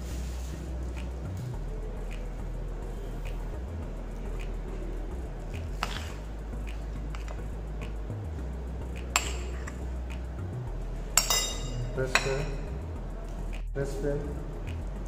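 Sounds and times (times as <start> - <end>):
steady low hum: 0.0 - 15.0
metal spoon clinking on plate: 9.2 - 9.7, 11.2 - 12.7.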